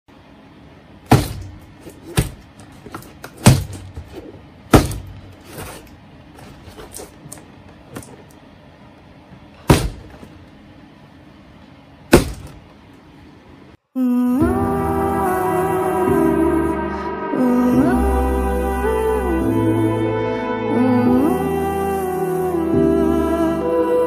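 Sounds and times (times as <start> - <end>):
cardboard box thunking on mat: 3.4 - 4.1.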